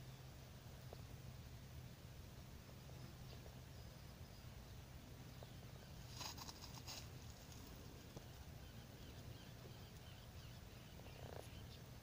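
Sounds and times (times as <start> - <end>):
low steady rumble: 0.0 - 12.0
distant bird chirps: 2.7 - 12.0.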